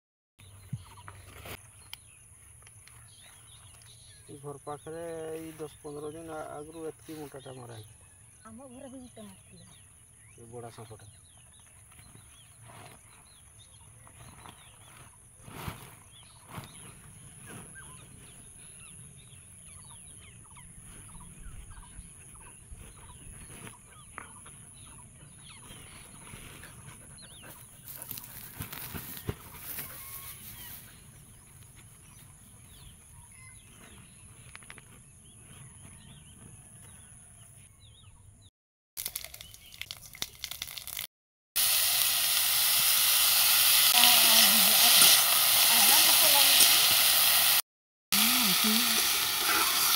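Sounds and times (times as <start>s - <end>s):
rustle of leafy vines: 14.1s - 18.4s, 28.0s - 31.0s.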